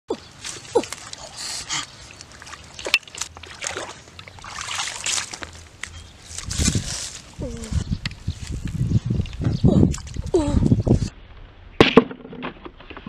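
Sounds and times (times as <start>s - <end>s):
water splashing: 0.1s - 7.4s.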